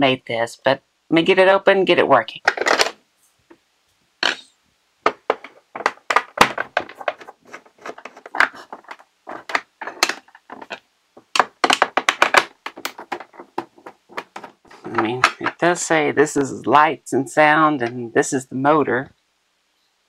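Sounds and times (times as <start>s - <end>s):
clicks and taps on plastic case: 5.1s - 15.5s.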